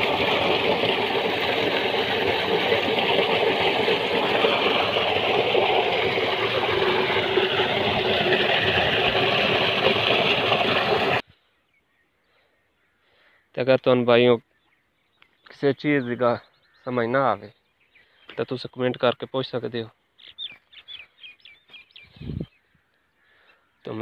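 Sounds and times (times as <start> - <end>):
water gushing from pipe: 0.0 - 11.2.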